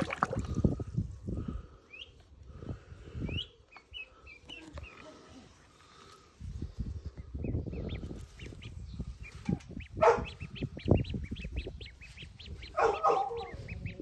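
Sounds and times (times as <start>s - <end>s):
duckling peeping: 1.9s - 2.2s, 3.2s - 5.1s, 7.4s - 14.0s
lower louder duckling calls: 7.8s - 14.0s.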